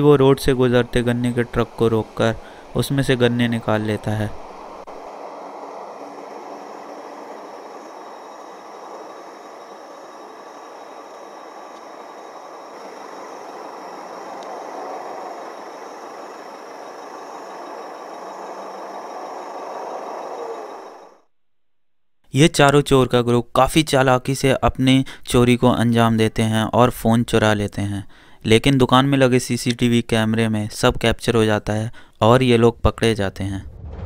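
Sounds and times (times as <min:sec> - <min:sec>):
trucks idling: 0:00.0 - 0:21.2.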